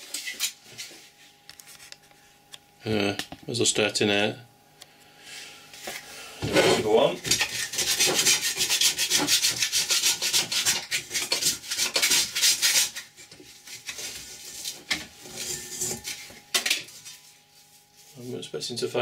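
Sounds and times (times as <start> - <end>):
scraper rubbing rusty metal: 6.6 - 18.3.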